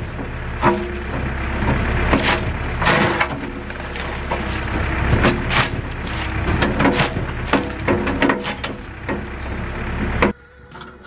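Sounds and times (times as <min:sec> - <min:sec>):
diesel engine running: 0:00.0 - 0:11.0
cracks and crunches of breaking plastic: 0:02.1 - 0:09.2.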